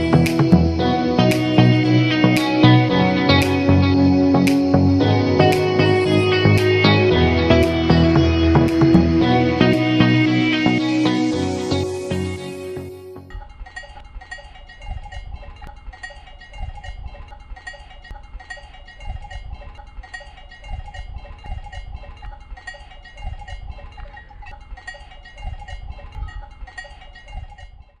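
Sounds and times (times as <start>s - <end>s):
cowbells clanking: 13.3s - 28.0s.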